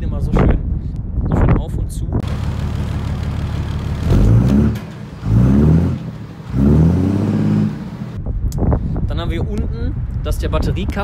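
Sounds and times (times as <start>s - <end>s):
diesel engine idling and revving: 2.2s - 8.2s.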